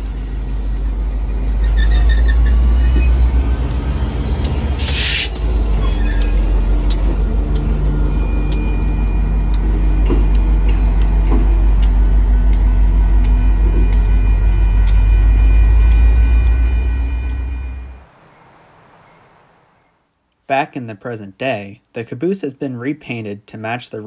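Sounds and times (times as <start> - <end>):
crossing bell dinging: 0.0 - 4.9, 5.6 - 19.2
locomotive engine rumbling: 0.0 - 20.0
thin steady whine: 0.0 - 20.2.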